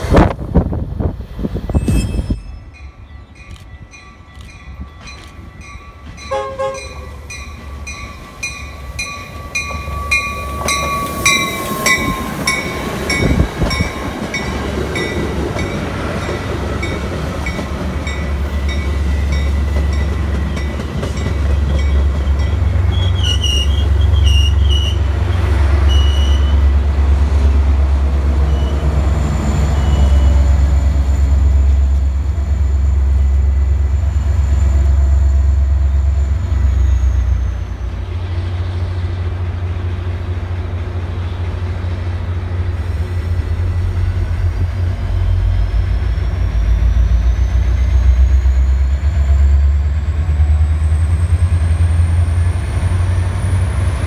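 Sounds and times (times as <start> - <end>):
diesel locomotive rumble: 0.0 - 54.0
train wheels rolling: 1.4 - 54.0.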